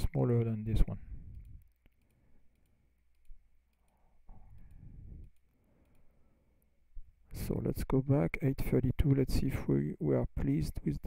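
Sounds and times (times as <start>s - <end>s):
faint computer clicks: 0.0s - 7.4s
soft low rumble: 0.8s - 1.7s, 4.2s - 5.5s.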